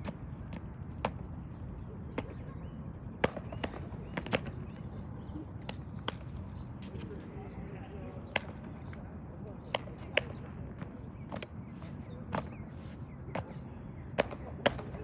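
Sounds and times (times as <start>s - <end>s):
hand claps and slaps: 5.6s - 6.3s.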